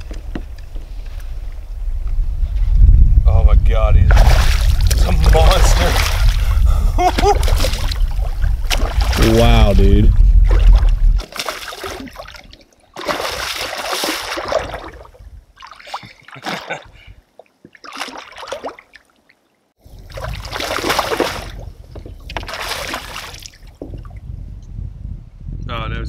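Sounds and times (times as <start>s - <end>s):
heavy low rumble: 1.3s - 11.2s
fish splashing at surface: 10.5s - 16.7s, 20.1s - 21.6s, 22.3s - 23.6s.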